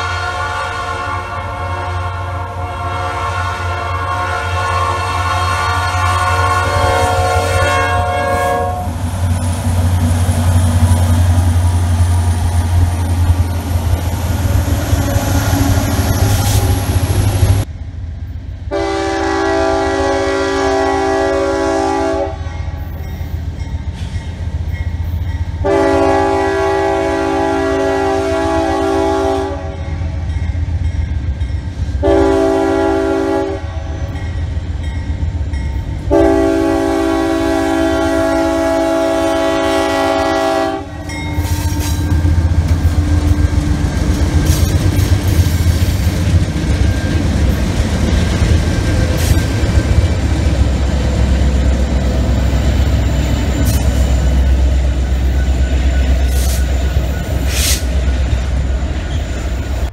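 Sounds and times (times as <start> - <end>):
locomotive horn: 0.0 - 9.0, 18.7 - 22.9, 25.6 - 30.1, 32.0 - 34.2, 36.0 - 43.4
train rumbling past: 0.0 - 59.9.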